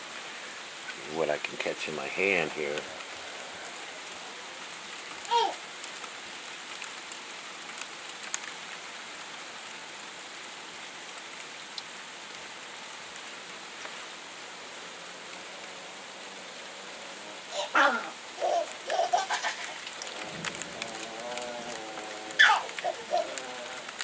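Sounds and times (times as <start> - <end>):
ice pellets ticking: 18.9 - 24.0.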